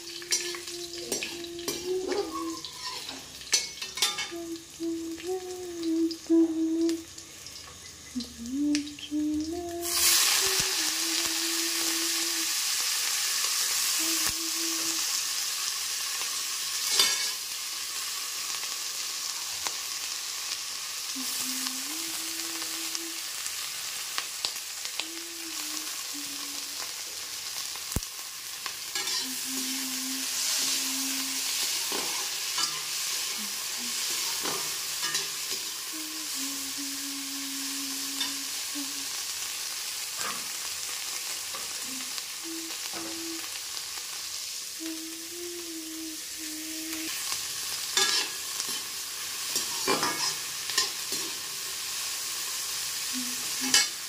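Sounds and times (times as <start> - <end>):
peppers sizzling in hot oil: 0.0 - 54.0
spatula scraping a wok: 1.1 - 4.3, 16.8 - 17.4, 28.9 - 29.4, 31.5 - 35.8, 48.0 - 51.5.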